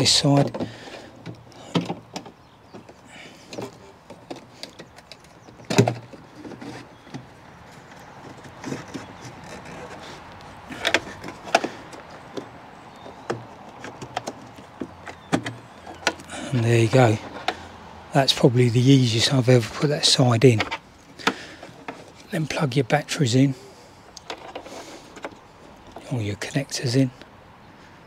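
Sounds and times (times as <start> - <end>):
hard plastic clicks and knocks: 0.0 - 16.3, 24.1 - 26.1.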